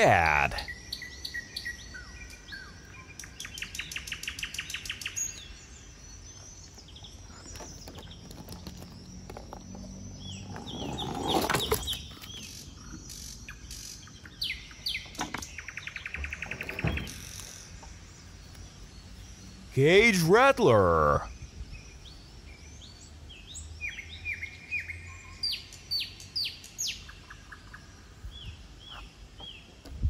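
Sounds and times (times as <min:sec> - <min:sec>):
birds singing: 0:00.0 - 0:30.0
toy truck rattling down slide: 0:10.4 - 0:12.4.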